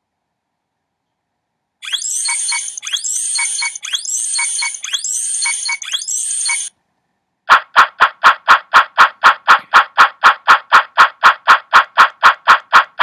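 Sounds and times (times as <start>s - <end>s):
electronic chiming jingle: 1.8s - 6.7s.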